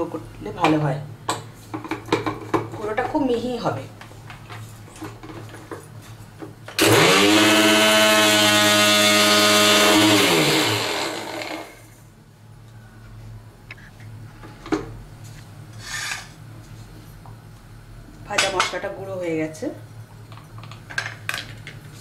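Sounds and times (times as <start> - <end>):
electric grinder running: 6.8 - 12.0.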